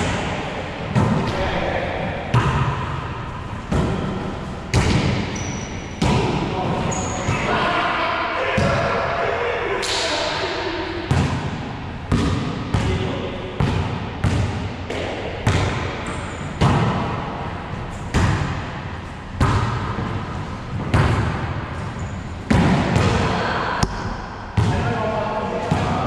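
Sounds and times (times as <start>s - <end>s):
volleyball smacks echoing: 2.2s - 3.1s, 3.7s - 5.4s, 11.0s - 17.2s, 18.0s - 18.8s, 19.4s - 21.6s, 22.5s - 24.9s.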